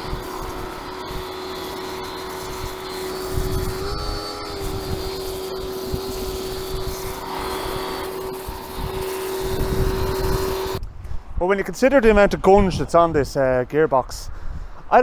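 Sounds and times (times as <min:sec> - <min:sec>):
pressure washer motor whine: 0:00.0 - 0:10.8
water jet hissing: 0:00.0 - 0:10.8.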